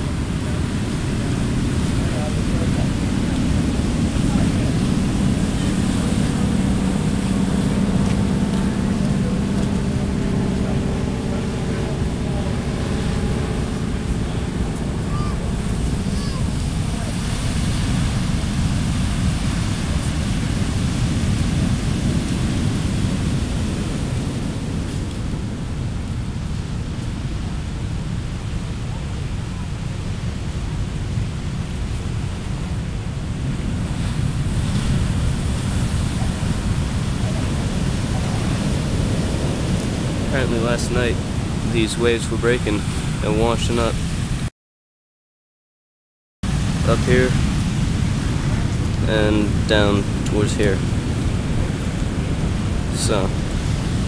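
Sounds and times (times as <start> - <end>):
heavy surf breaking: 0.0 - 44.5, 46.4 - 54.0
wind buffeting microphone: 0.0 - 44.5, 46.5 - 54.0.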